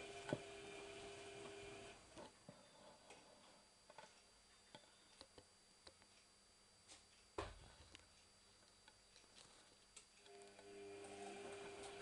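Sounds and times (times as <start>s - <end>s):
washing machine motor whine: 0.0s - 3.4s, 10.2s - 12.0s.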